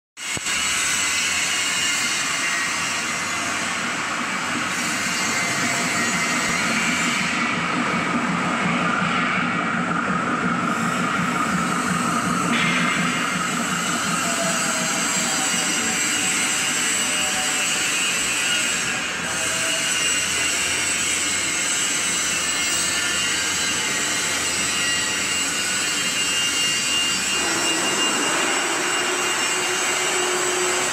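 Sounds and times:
screw conveyor whirring: 9.8s - 30.9s.

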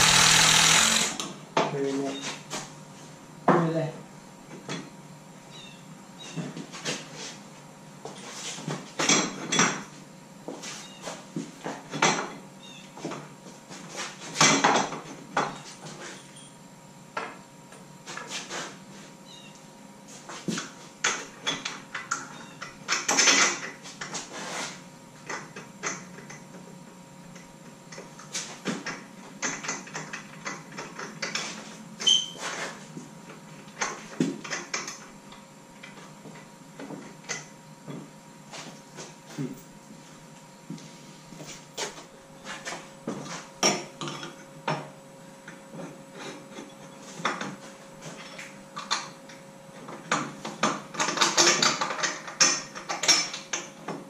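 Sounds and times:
hand tools and metal parts clattering: 0.0s - 2.7s, 8.0s - 16.6s, 20.2s - 26.6s, 27.4s - 32.9s, 45.6s - 49.2s, 49.8s - 54.0s.

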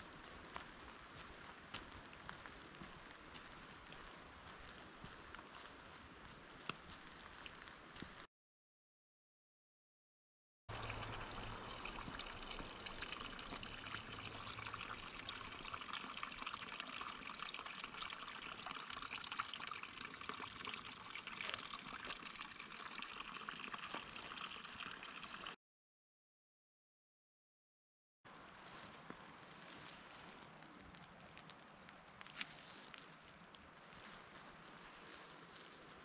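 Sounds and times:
running water trickling: 10.7s - 25.6s.

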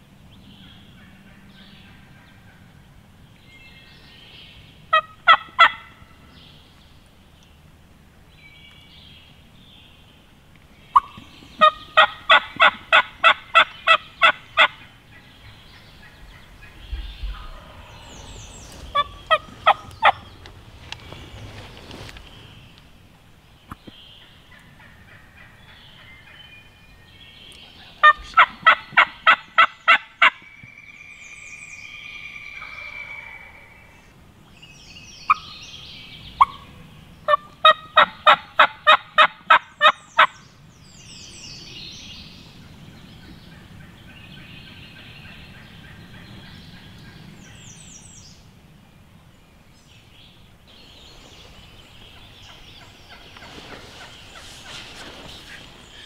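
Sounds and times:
faint bird calls: 10.8s - 22.8s, 27.4s - 34.2s.

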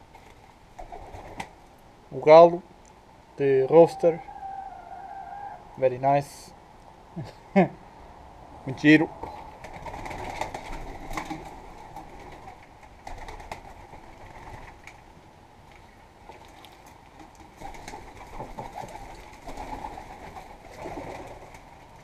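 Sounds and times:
pigeons cooing: 3.6s - 5.8s.

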